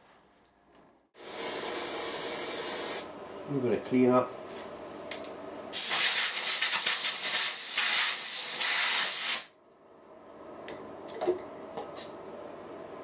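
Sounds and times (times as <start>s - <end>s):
compressed air blow gun hissing: 1.2s - 3.1s.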